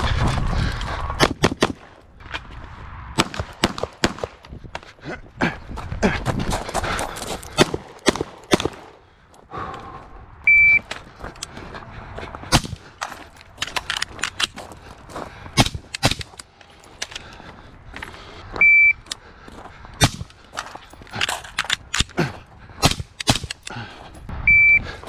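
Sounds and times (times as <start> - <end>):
gunshots: 1.2 - 1.9, 3.1 - 4.4, 7.6 - 9.0, 22.8 - 23.6
shot timer beeps: 10.5 - 10.8, 18.6 - 19.0, 24.5 - 24.8.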